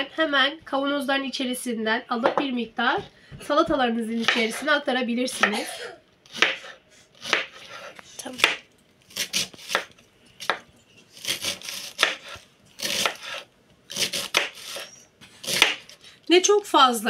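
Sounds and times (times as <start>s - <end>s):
knife slicing cabbage on wooden board: 6.3s - 16.0s.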